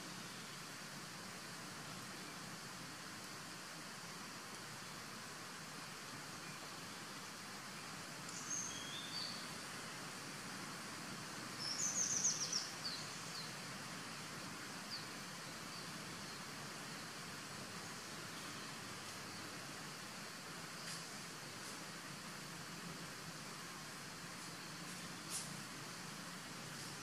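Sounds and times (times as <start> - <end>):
steady outdoor hiss: 0.0 - 27.0
small bird chirping: 8.3 - 9.5, 11.6 - 13.6.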